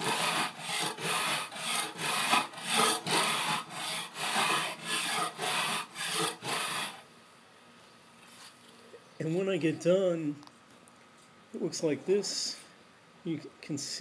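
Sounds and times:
rasp scraping wood: 0.0 - 7.0.

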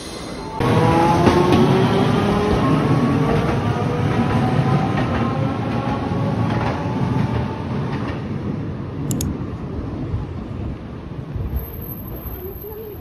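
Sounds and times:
scattered clicks: 9.0 - 9.4.

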